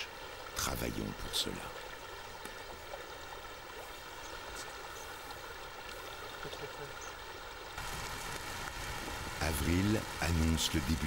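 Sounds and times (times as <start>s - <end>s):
faint ticks: 2.3s - 2.8s.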